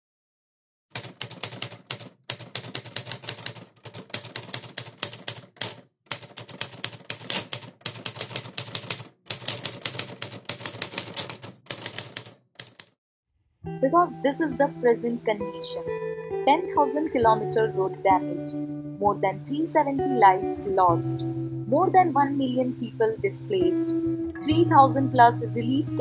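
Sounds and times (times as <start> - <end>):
typewriter keystrokes: 0.9 - 12.9.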